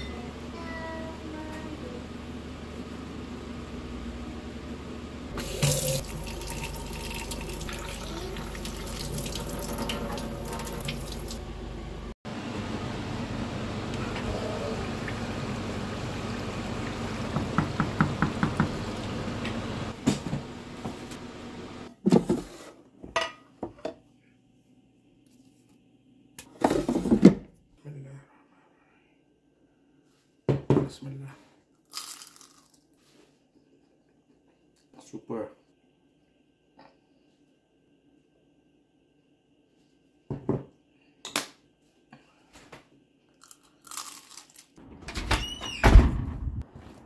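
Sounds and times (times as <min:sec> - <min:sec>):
tap water running into sink: 0:05.4 - 0:11.4, 0:16.6 - 0:19.6
knocks: 0:17.3 - 0:18.8.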